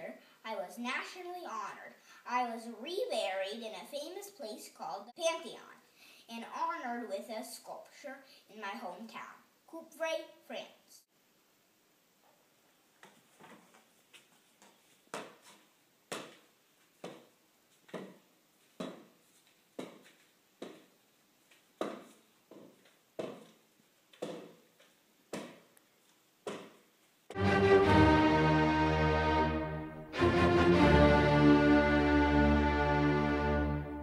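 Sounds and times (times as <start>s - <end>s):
loud music: 27.3s - 34.0s.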